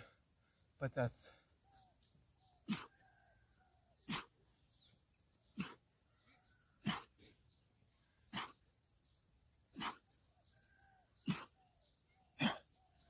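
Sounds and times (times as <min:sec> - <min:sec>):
sharp forceful breaths: 0:00.0 - 0:01.6
faint bird chirps: 0:00.0 - 0:13.0.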